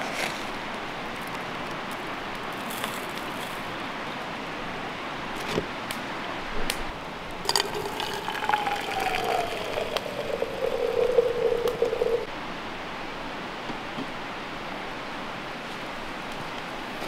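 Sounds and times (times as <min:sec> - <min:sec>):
water pouring into teapot: 0:07.4 - 0:12.3.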